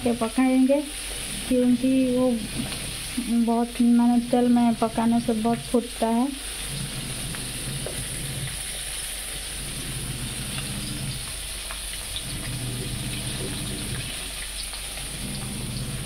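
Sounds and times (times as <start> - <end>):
fish frying in oil: 0.0 - 16.0
oil popping and crackling: 1.0 - 3.3, 6.4 - 16.0.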